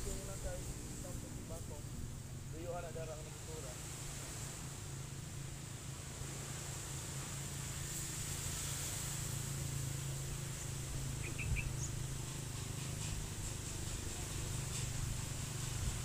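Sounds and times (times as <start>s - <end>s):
steady low hum: 0.0s - 16.0s
bird chirps: 11.2s - 12.0s.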